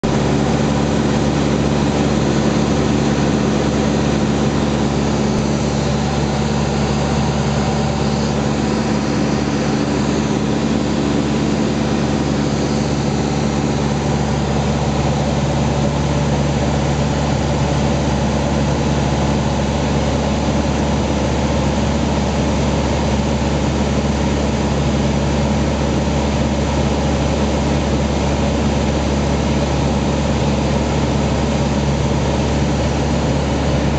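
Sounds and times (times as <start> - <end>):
propeller aircraft engine drone: 0.0 - 33.9.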